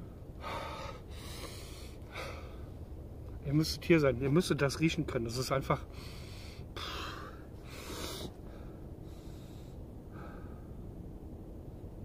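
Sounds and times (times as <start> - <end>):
man breathing in through nose: 0.4 - 2.7, 5.9 - 10.8.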